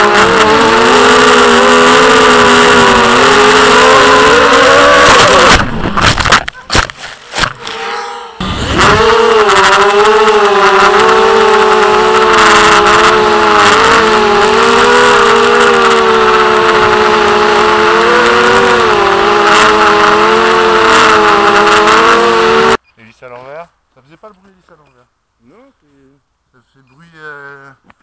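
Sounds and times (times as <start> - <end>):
quadcopter motors whining: 0.0 - 5.8, 7.2 - 22.8.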